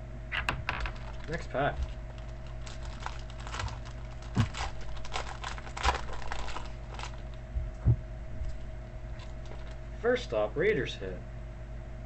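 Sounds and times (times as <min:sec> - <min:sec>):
steady low hum: 0:00.0 - 0:12.0
wrapper crinkling and tearing: 0:00.8 - 0:07.4, 0:09.2 - 0:09.8.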